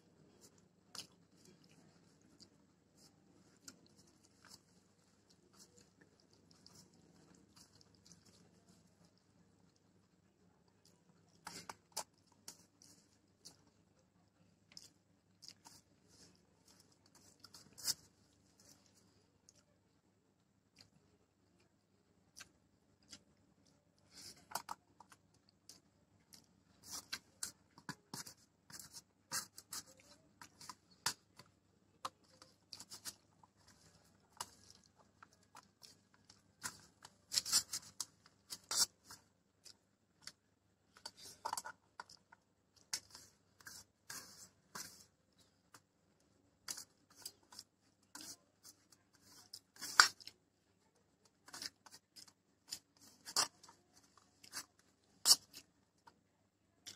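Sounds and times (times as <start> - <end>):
fingers mixing rice: 0.0 - 19.7, 24.0 - 56.2
close chewing: 0.1 - 19.7, 22.3 - 45.8.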